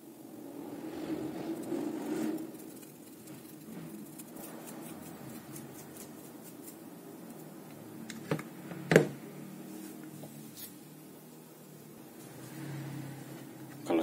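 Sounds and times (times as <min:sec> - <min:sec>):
faint steady hum: 0:00.0 - 0:14.0
paintbrush scratchy strokes: 0:00.3 - 0:07.5.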